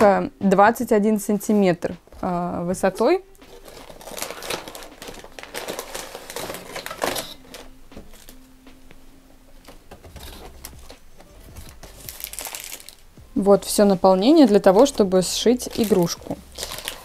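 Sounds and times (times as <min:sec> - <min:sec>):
plastic packaging crinkling: 0:03.4 - 0:08.5, 0:09.6 - 0:13.1, 0:13.7 - 0:17.0.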